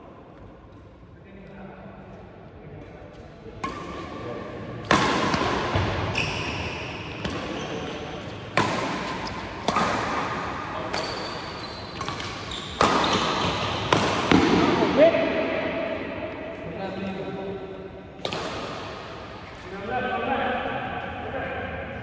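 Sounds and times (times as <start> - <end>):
rackets hitting shuttlecock: 3.6 - 15.0, 18.2 - 19.7.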